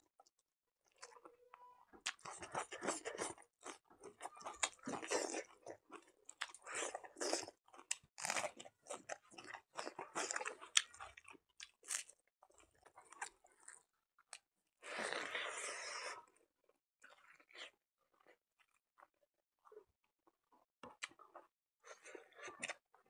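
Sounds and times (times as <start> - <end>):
person chewing and crunching: 2.0 - 16.2.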